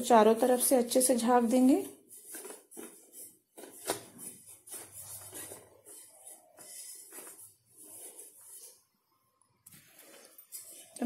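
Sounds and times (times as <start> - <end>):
cloth rustling and rubbing: 1.4 - 9.0.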